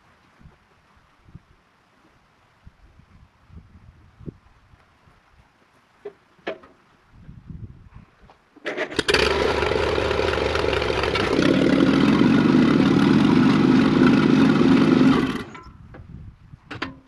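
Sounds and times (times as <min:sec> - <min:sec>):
tractor engine starting and running: 0:08.6 - 0:16.1.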